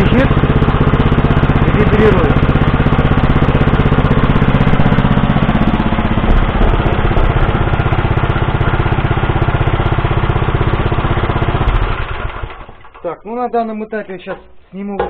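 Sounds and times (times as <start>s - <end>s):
small engine running: 0.0s - 13.0s
sheet-metal fenders rattling: 0.9s - 10.0s.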